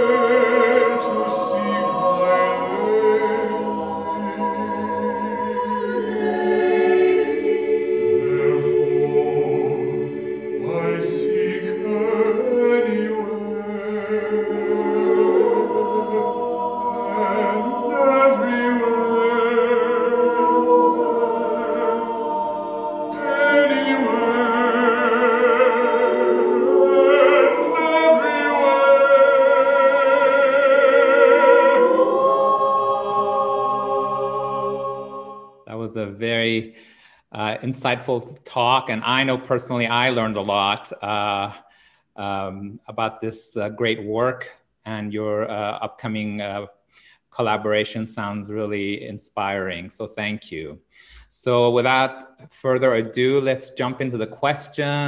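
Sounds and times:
mixed choir singing a cappella: 0.0 - 35.7.

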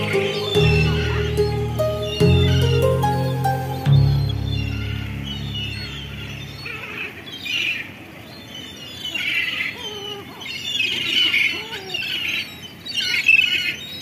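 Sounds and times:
background music: 0.0 - 6.7
gulls squawking: 0.0 - 7.9.

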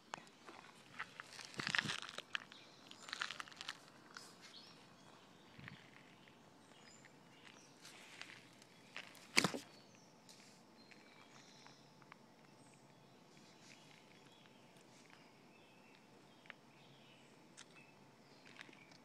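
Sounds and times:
sharp wooden snap: 9.3 - 9.7.

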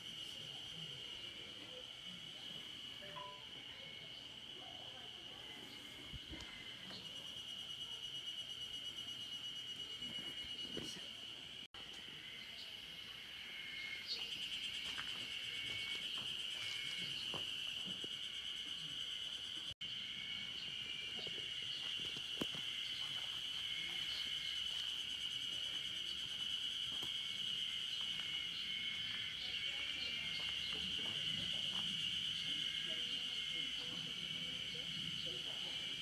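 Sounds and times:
insects droning: 0.0 - 36.0
faint broken tone: 3.0 - 3.7.

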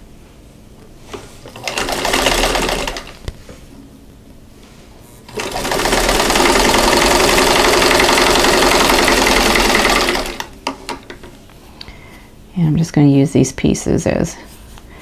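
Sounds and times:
sewing machine stitching: 1.4 - 3.2, 5.3 - 10.6.

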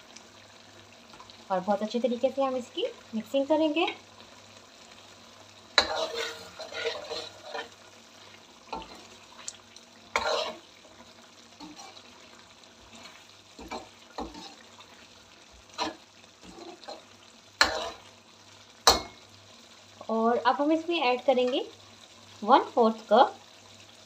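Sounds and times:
metal ladle scraping a pan: 5.8 - 7.8, 8.7 - 9.2, 10.1 - 10.7, 11.6 - 12.1, 12.9 - 14.6, 15.8 - 18.1.

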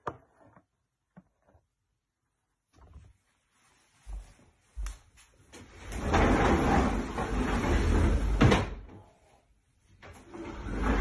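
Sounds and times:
bed frame sliding on floor: 5.4 - 9.2, 9.8 - 11.0.

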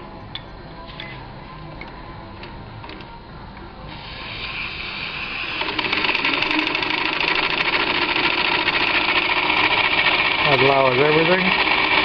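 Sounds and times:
small steam engine running: 4.2 - 12.0.

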